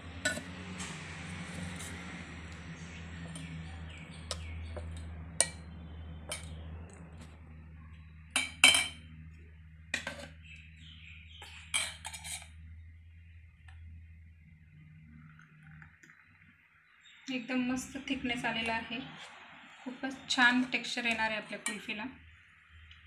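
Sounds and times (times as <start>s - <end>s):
low steady hum: 0.0s - 23.0s
spoon clinking against metal bowl: 6.3s - 6.6s, 8.4s - 9.0s, 11.6s - 12.4s.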